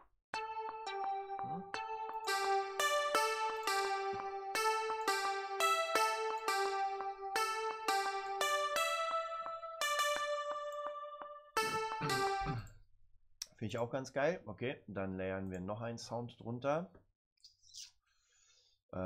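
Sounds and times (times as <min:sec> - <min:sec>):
held low synth tones: 0:00.4 - 0:12.7
plucked synth melody: 0:00.4 - 0:12.7.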